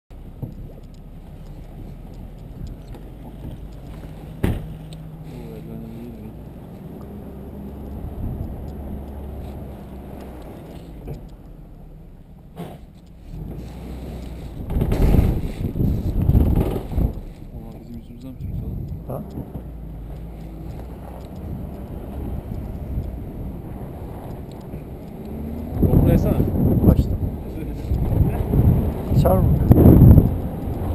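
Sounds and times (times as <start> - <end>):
vehicle engine hum: 0.1 - 30.9
sharp knocks: 4.3 - 4.8
wind on microphone: 5.8 - 10.6, 13.3 - 30.9.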